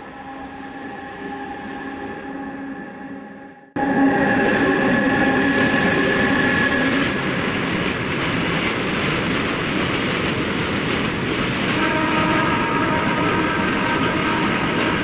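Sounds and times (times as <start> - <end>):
train wheels rumbling on rail: 3.8 - 15.0.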